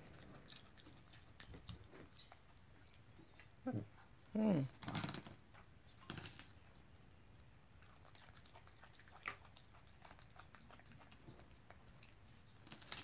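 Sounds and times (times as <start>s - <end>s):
monkey chewing raw onion: 0.0s - 3.6s, 7.8s - 13.0s.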